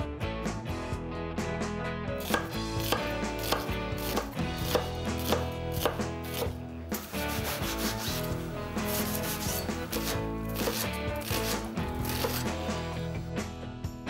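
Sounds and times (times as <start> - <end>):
knife slicing onion on board: 2.2 - 12.6.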